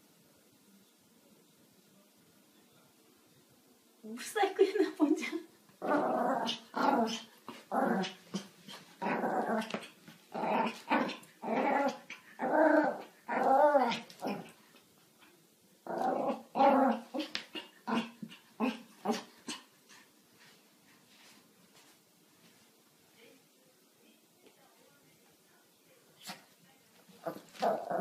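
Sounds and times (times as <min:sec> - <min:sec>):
dog growling playfully: 0:05.8 - 0:14.6, 0:15.8 - 0:19.7, 0:27.2 - 0:28.0.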